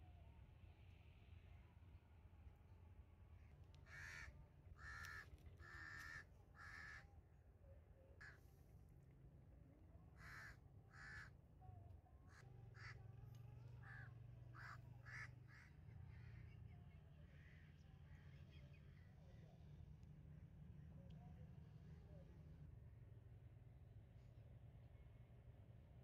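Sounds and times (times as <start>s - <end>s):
crows cawing: 3.8s - 7.0s, 8.2s - 8.4s, 10.2s - 11.3s, 12.3s - 13.0s, 13.8s - 16.4s.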